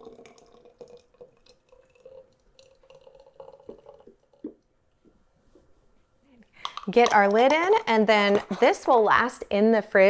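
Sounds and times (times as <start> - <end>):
thick sauce pouring and dripping: 0.0 - 4.6
faint steady hum: 0.0 - 10.0.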